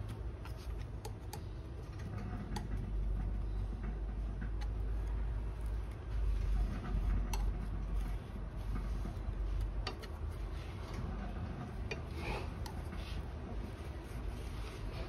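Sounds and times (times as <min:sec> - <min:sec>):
low steady hum: 0:00.0 - 0:15.0
paper wiping across frying pan: 0:07.7 - 0:15.0.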